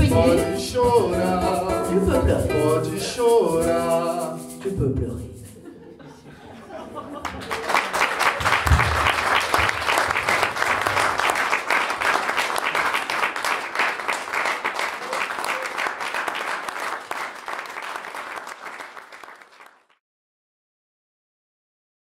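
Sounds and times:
audience applauding: 7.1s - 20.0s.

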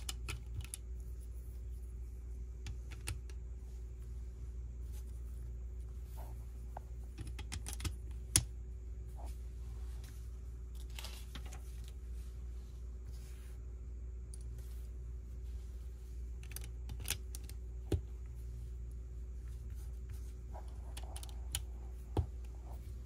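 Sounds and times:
steady low hum: 0.0s - 23.0s
plastic pieces clicking together: 16.4s - 18.0s.

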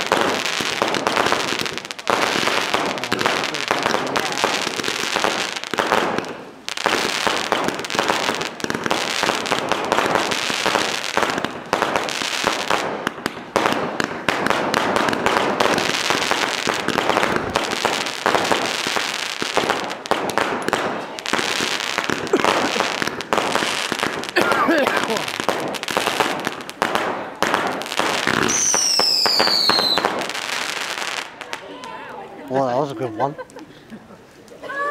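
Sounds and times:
fireworks bangs and crackles: 0.0s - 33.6s.

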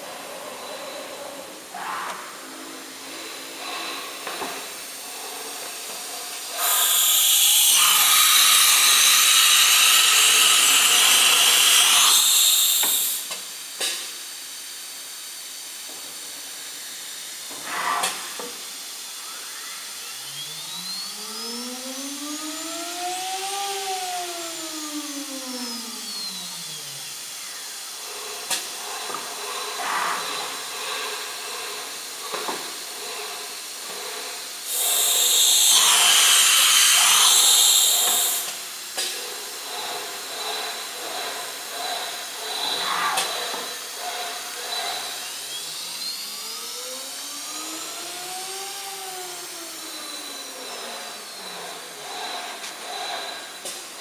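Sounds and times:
spindle motor whining: 0.0s - 13.4s, 17.6s - 54.0s
compressed air hissing: 0.0s - 14.4s, 16.2s - 19.3s, 27.6s - 45.4s.

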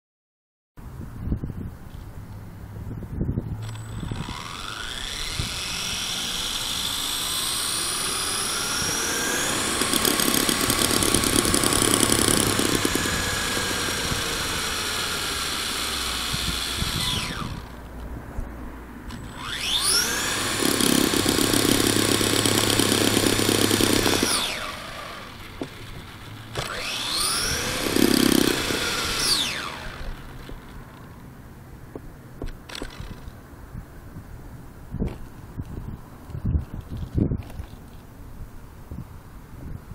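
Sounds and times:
electric motor whining: 3.6s - 18.0s, 19.0s - 31.1s.

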